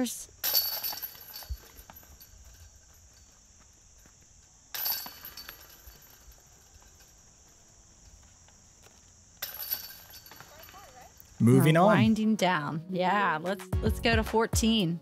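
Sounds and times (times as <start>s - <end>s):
metallic chain rattle: 0.3s - 3.4s, 4.7s - 7.4s, 9.4s - 11.0s.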